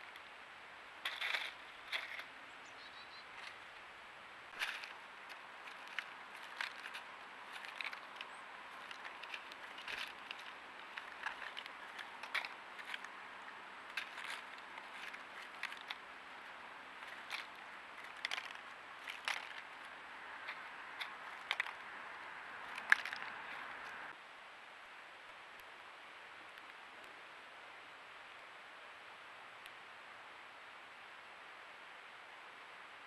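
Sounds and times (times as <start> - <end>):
birds pecking seed: 0.0 - 24.2
faint steady hiss: 0.0 - 33.0.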